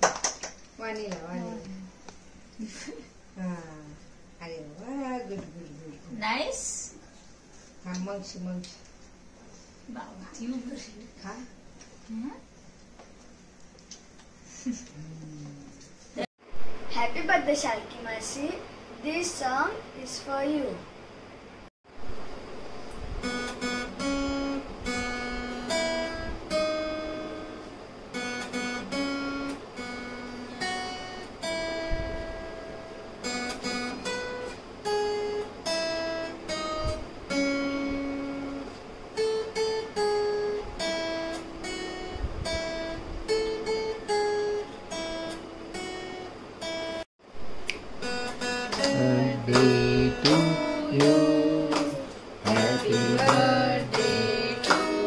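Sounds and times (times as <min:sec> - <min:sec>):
acoustic guitar plucked melody: 0:23.2 - 0:47.0, 0:47.6 - 0:55.0
strummed guitar chords: 0:23.2 - 0:47.0, 0:47.8 - 0:55.0.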